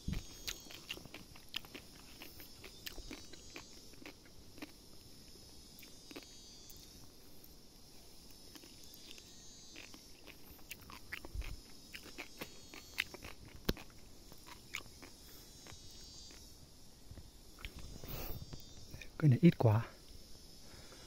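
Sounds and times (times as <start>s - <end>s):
sharp clicks and crunches: 0.0s - 4.8s, 9.8s - 16.4s
insects buzzing: 0.0s - 21.0s.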